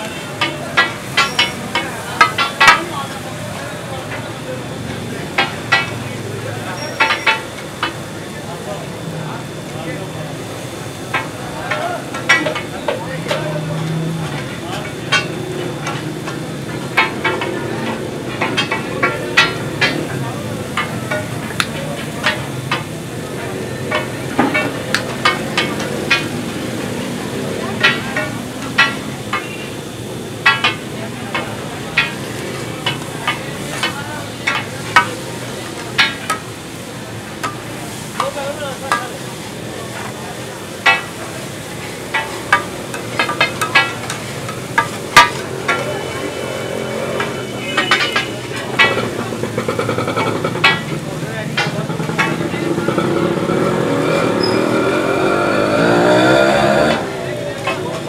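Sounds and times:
metal spatula clinking on griddle: 0.1s - 3.2s, 40.8s - 41.2s, 42.0s - 51.0s
vehicle engine passing: 48.4s - 58.0s.

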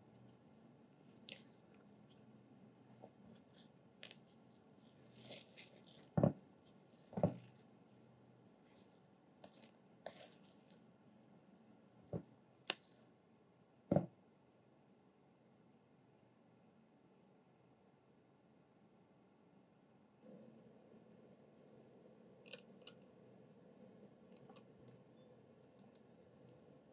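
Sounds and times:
spatula scraping batter in bowl: 4.8s - 7.8s, 8.6s - 10.8s.

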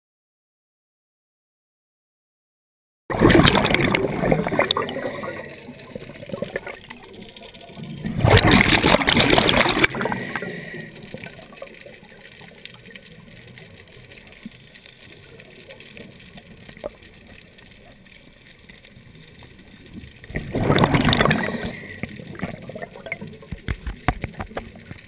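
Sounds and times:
underwater breath bubbling: 3.1s - 11.8s, 20.3s - 23.7s.

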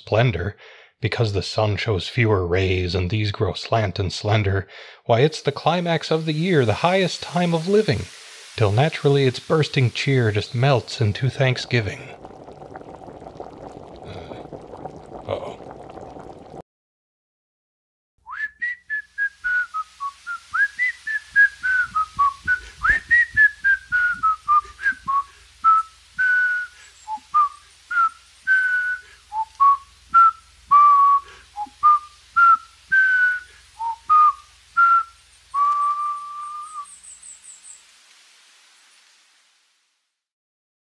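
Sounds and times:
person whistling a tune: 18.2s - 36.9s.

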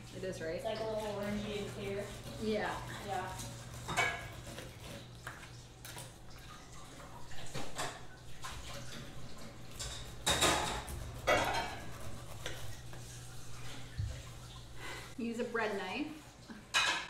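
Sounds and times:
bread knife sawing pineapple rind: 0.6s - 5.5s, 10.0s - 13.6s.

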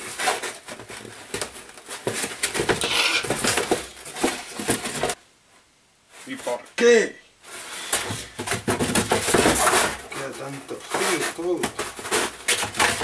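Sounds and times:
foam board squeaky rubbing: 0.0s - 5.1s, 7.5s - 13.0s.

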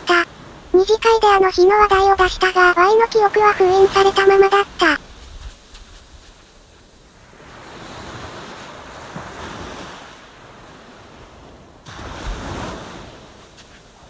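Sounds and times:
ocean waves washing in: 6.6s - 14.0s.

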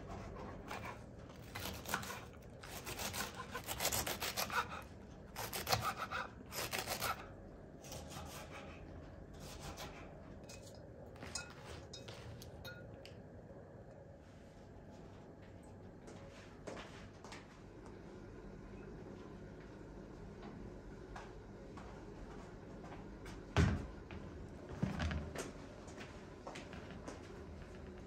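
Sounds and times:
knife shredding cabbage: 0.6s - 8.7s.

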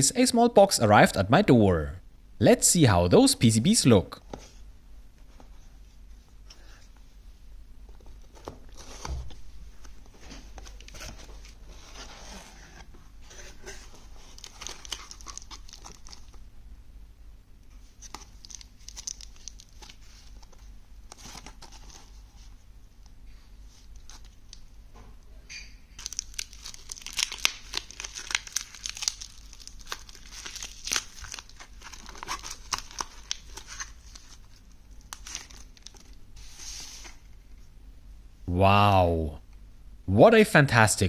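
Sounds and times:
bubble wrap bag crinkling: 13.6s - 16.4s, 18.0s - 20.6s, 26.0s - 36.6s.

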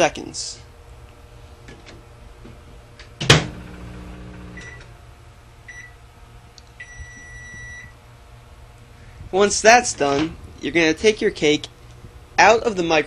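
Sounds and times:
microwave humming: 0.0s - 12.4s
microwave door shutting: 3.1s - 5.0s
keypad beeps: 6.8s - 7.9s.

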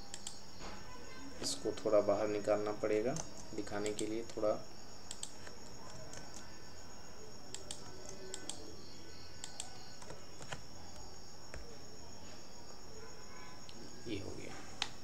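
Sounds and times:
computer mouse clicking: 0.0s - 0.4s, 3.1s - 4.2s, 5.1s - 6.5s, 7.5s - 8.6s, 9.4s - 11.6s.

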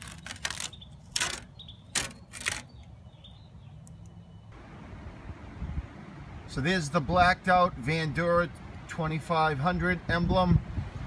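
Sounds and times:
masking tape being peeled: 0.0s - 2.7s.

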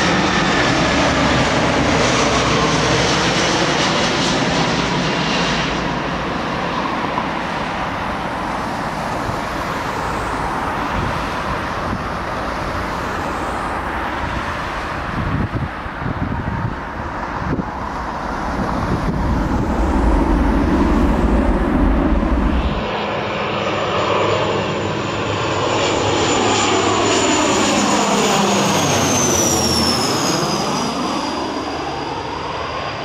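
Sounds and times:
jet engine rumble: 0.0s - 33.0s
jet fan whine: 7.7s - 24.3s.

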